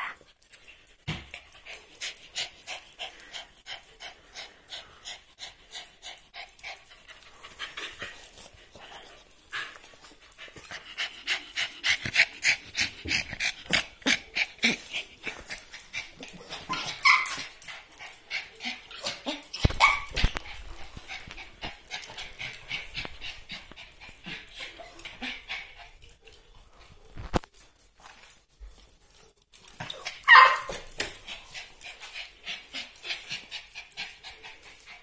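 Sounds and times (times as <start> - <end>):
dog panting: 0.3 - 27.1, 28.2 - 35.0
dog barking: 30.3 - 30.8.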